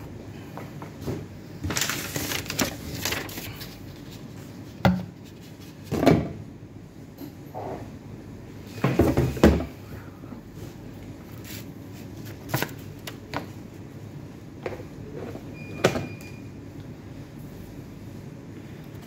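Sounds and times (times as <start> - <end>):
paper rustling: 1.6 - 5.8.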